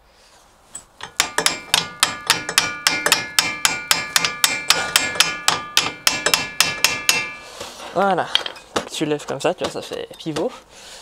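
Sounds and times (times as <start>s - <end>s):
hammer striking metal: 0.8s - 7.7s.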